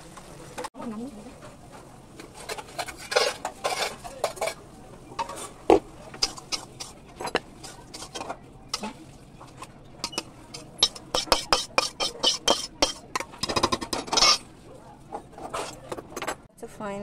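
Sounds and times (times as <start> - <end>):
metal spatula scraping a wok: 2.2 - 4.6, 5.2 - 14.5.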